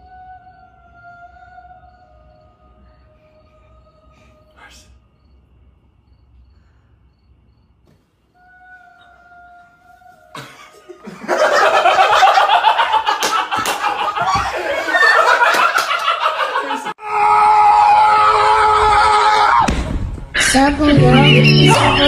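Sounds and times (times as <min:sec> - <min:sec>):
people laughing: 0:10.3 - 0:17.0.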